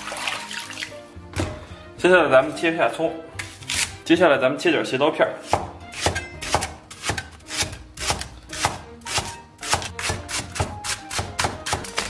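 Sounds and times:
cleaver striking wooden board: 5.5 - 12.0.

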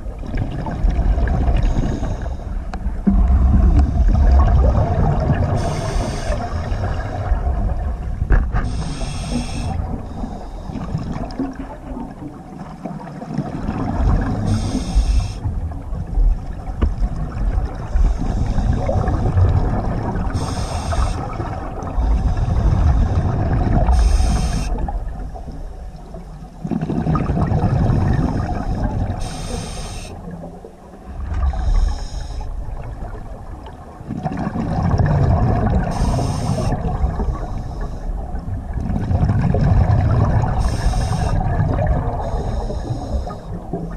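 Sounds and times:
underwater water rumble: 0.0 - 43.9
scuba regulator breath hiss: 1.6 - 2.6, 5.6 - 7.1, 8.6 - 10.9, 14.4 - 15.5, 17.9 - 19.0, 20.3 - 21.4, 23.9 - 24.9, 28.3 - 30.3, 31.5 - 32.5, 35.9 - 38.1, 40.6 - 41.5, 42.2 - 43.6.

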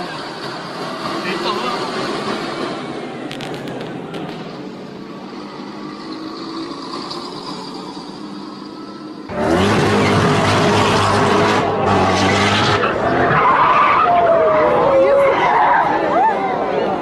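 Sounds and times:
road traffic noise: 0.0 - 17.0
sports car engine revving: 9.3 - 13.3.

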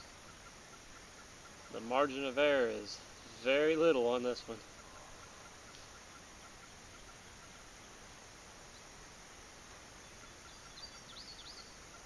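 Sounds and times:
faint insect chirping: 0.0 - 12.0
short high bird calls: 10.0 - 12.0.

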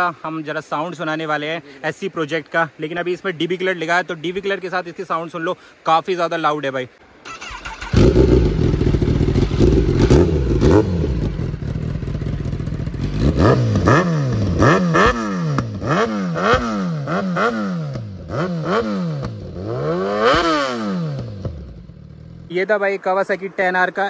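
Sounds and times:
motorcycle engine revving: 7.3 - 22.5.

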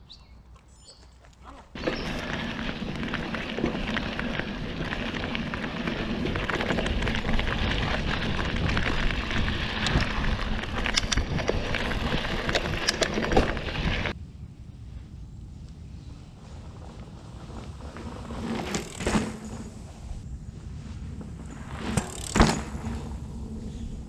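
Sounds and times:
bike tyres on dirt trail: 0.8 - 14.2, 15.2 - 24.0
bike knocking and rattling: 1.8 - 14.2, 16.6 - 20.2, 21.0 - 24.0.

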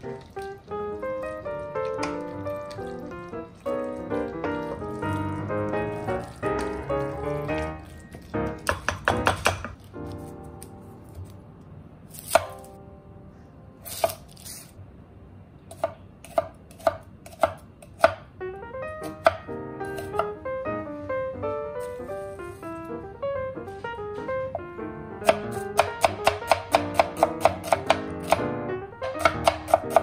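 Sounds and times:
light piano music: 0.0 - 30.0
knife knocking on chopping board: 8.6 - 9.7.

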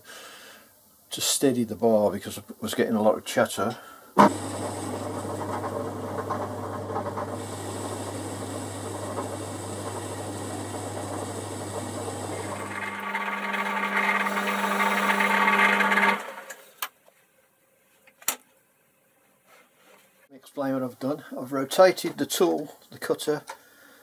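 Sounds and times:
lathe running: 4.2 - 16.6
tool cutting steel bar: 10.1 - 16.6.

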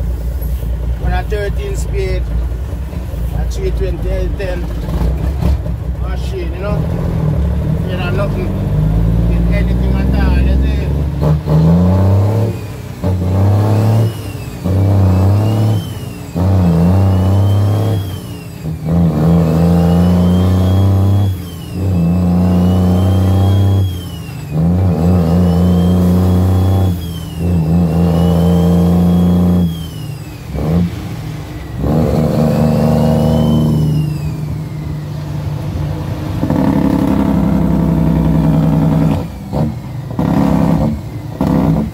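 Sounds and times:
diesel truck engine revving: 0.0 - 41.9
transmission whine: 12.2 - 41.9.

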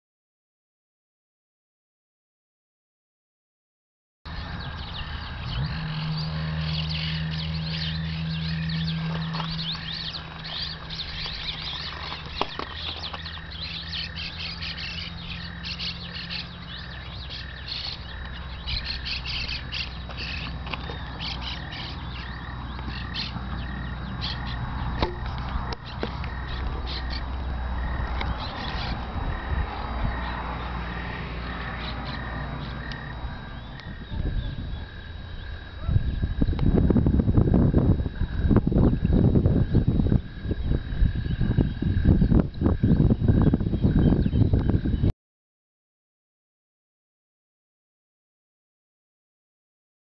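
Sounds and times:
small birds chirping: 4.3 - 36.6, 38.1 - 45.1
low steady hum: 4.3 - 45.1.

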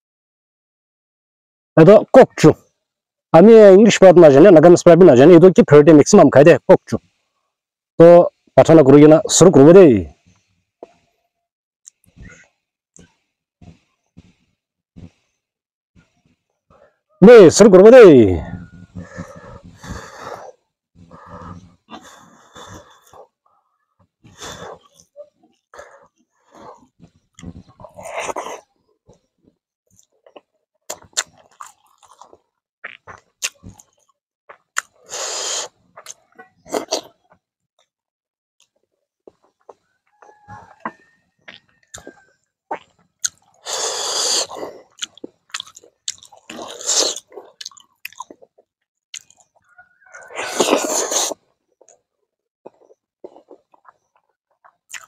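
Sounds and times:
mouth clicks: 11.8 - 15.2, 18.4 - 23.4, 24.2 - 29.3, 29.9 - 37.4, 38.6 - 52.0, 52.6 - 55.0
person chewing food: 18.5 - 37.4, 38.6 - 55.0
person breathing: 18.9 - 23.3, 24.2 - 24.9.

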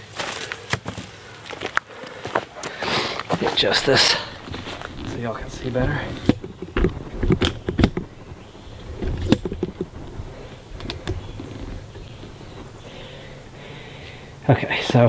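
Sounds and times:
rubbing: 3.4 - 14.5
camera handling knocks and clicks: 5.8 - 12.8.

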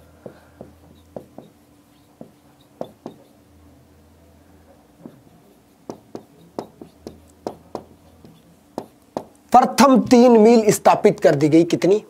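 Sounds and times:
faint low hum: 0.0 - 12.0
marker tapping on whiteboard: 0.2 - 3.4, 5.0 - 9.4.

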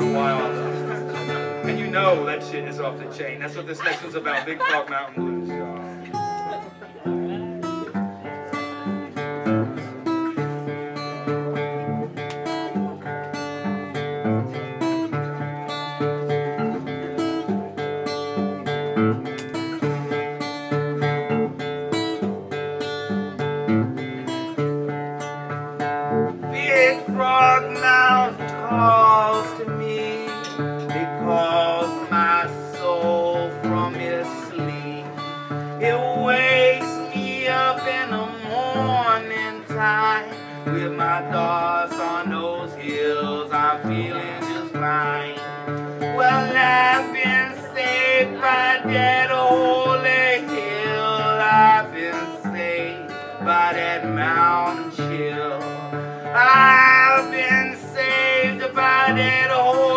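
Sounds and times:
man singing blues: 0.0 - 6.4, 26.3 - 59.9
acoustic guitar: 0.0 - 59.9.

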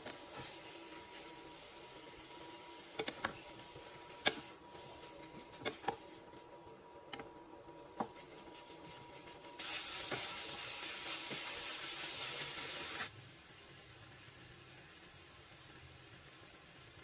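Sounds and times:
sizzling hiss: 0.0 - 5.3, 8.1 - 17.0
wooden spatula scraping a frying pan: 2.9 - 6.2.

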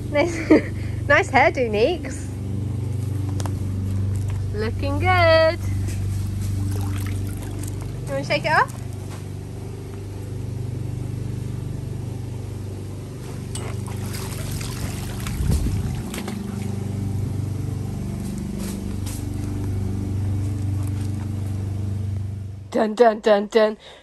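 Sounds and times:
steady low hum: 0.0 - 24.0
water splashing and dripping: 6.5 - 8.0, 13.6 - 17.0.

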